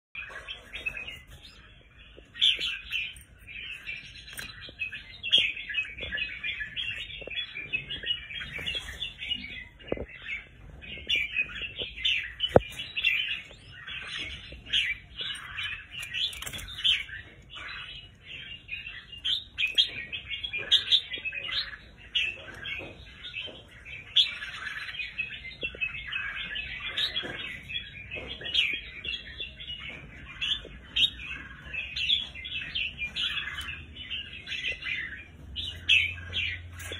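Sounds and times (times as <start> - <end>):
birds chirping and calling: 0.1 - 36.9.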